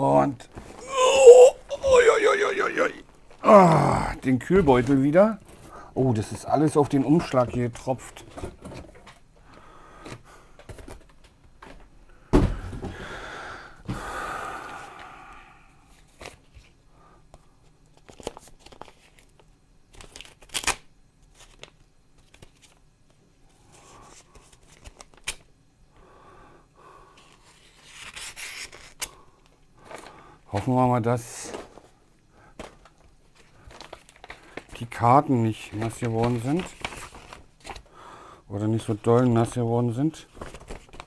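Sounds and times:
plastic bags and paper crinkling: 0:32.6 - 0:37.9, 0:38.9 - 0:41.0.

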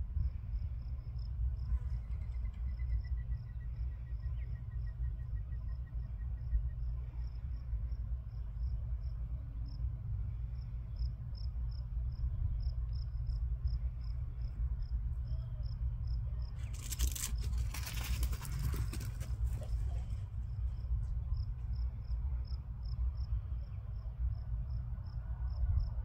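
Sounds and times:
low rumble: 0:00.0 - 0:26.0
cricket chirping: 0:00.1 - 0:26.0
rustling: 0:16.6 - 0:20.3.

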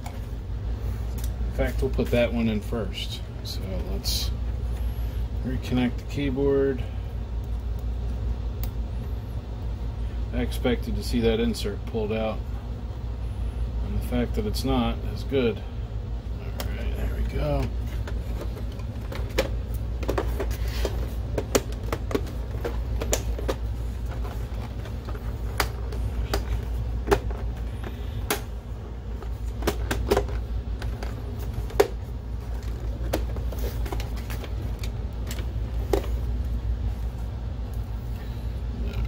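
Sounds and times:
steady low hum: 0:00.0 - 0:39.0.

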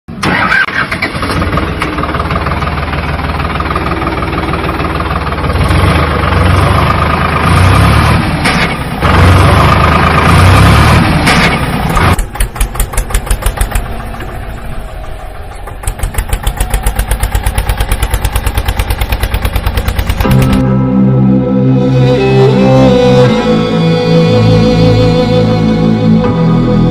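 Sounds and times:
tractor engine running: 0:00.1 - 0:21.3.

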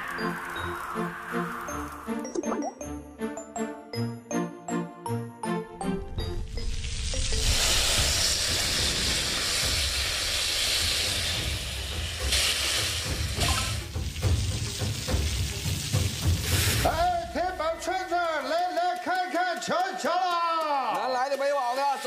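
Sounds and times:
chiming melody: 0:01.6 - 0:07.3
meat sizzling on a griddle: 0:06.6 - 0:17.0.

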